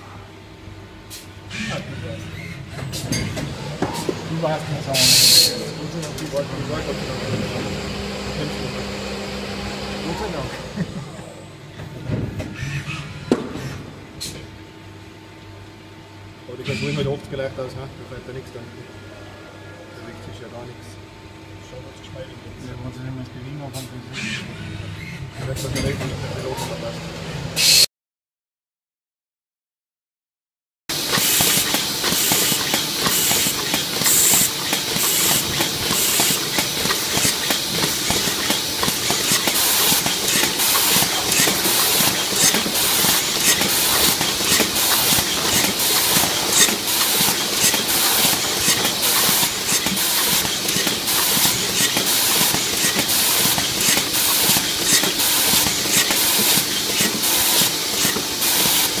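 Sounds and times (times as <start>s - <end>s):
pneumatic hissing: 4.9s - 5.8s, 27.6s - 27.9s, 31.0s - 59.0s
machine clicking and clatter: 30.9s - 59.0s.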